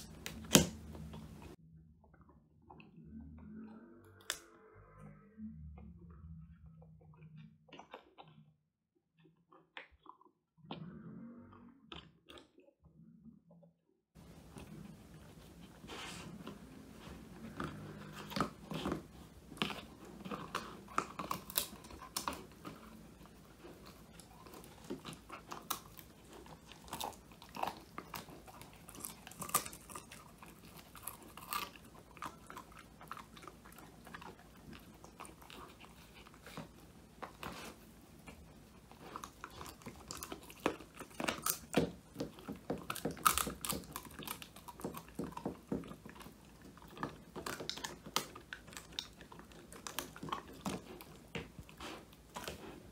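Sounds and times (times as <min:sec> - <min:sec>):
puppy crunching and chewing: 0:00.0 - 0:02.8, 0:14.2 - 0:52.9.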